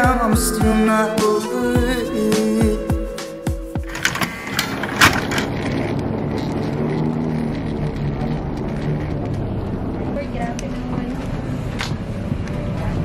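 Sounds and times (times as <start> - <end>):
low mechanical drone: 3.7 - 13.0
clicks and knocks: 3.9 - 5.8.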